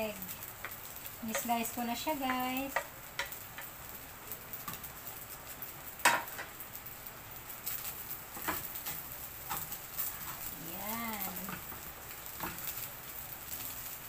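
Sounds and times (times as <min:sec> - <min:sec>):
faint sizzle: 0:00.0 - 0:14.0
spatula scraping frying pan: 0:07.7 - 0:12.9.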